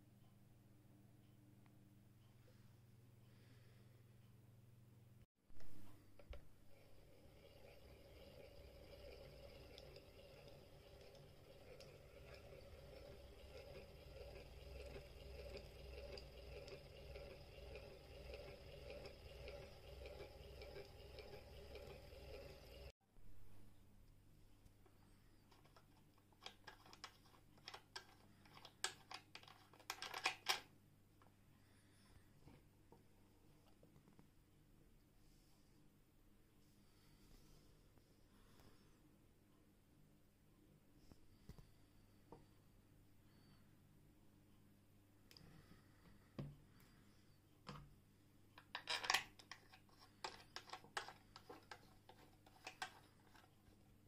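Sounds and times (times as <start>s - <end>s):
sewing machine metal parts clicking: 7.2s - 22.9s, 25.5s - 30.7s, 48.6s - 53.6s.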